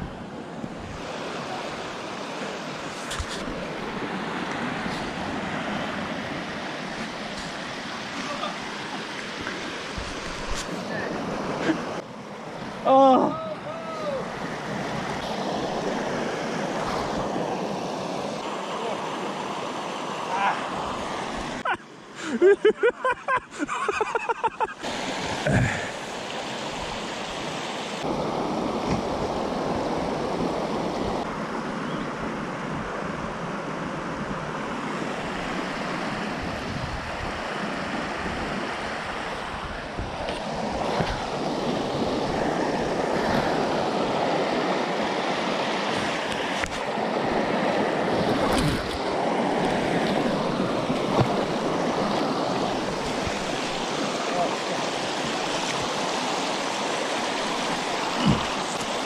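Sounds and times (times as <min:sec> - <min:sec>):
creek water rushing over rocks: 0:00.0 - 0:59.0.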